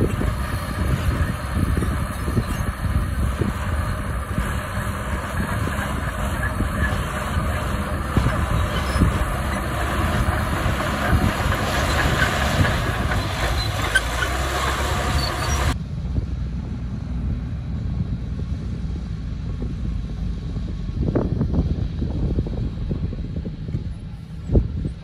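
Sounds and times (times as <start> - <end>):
steel tracks clanking: 0.0 - 15.8
bulldozer diesel engine under load: 0.0 - 25.0.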